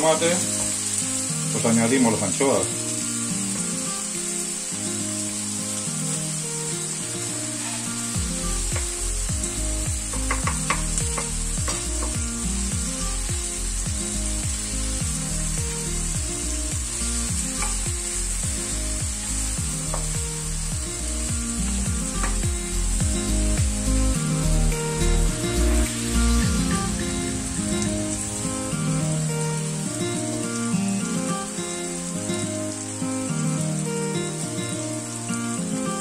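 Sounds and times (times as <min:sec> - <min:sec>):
food sizzling in a frying pan: 0:00.0 - 0:36.0
background music with a beat: 0:08.1 - 0:32.5.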